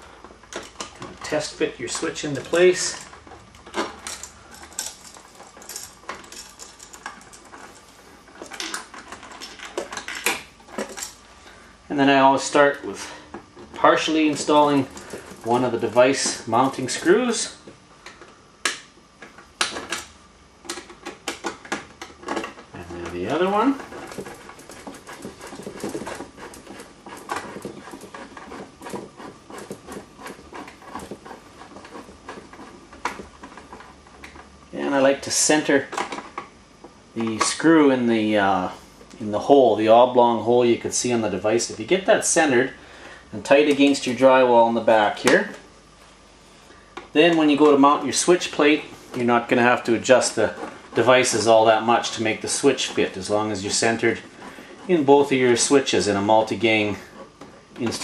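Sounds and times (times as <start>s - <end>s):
screw threading scratches and clicks: 0.2s - 11.2s, 13.3s - 34.5s, 49.1s - 58.0s.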